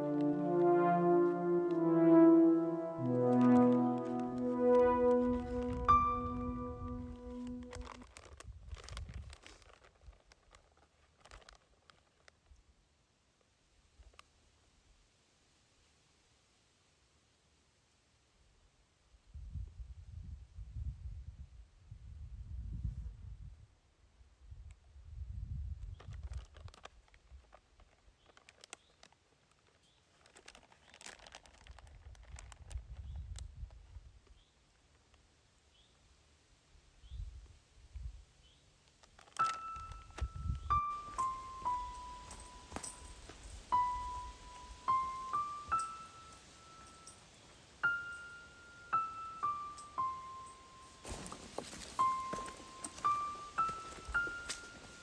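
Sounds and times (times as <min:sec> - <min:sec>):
gentle keyboard melody: 0:00.0 - 0:08.1, 0:39.3 - 0:55.0
wind rumble on microphone: 0:05.1 - 0:10.2, 0:19.2 - 0:27.5, 0:31.6 - 0:34.4, 0:37.0 - 0:38.3, 0:39.8 - 0:40.9
plastic crinkling and clicking: 0:07.0 - 0:12.6, 0:25.9 - 0:33.8, 0:38.8 - 0:43.0.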